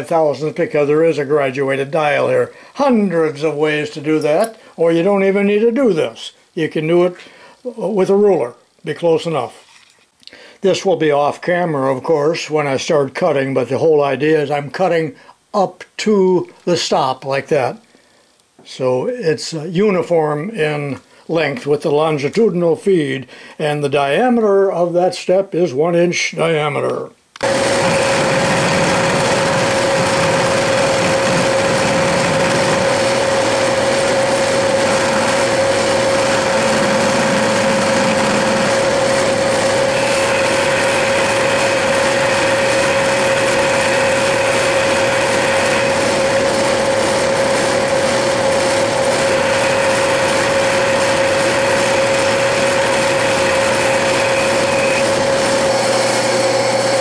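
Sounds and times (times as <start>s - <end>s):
metal lathe whirring and whining: 27.4s - 57.0s.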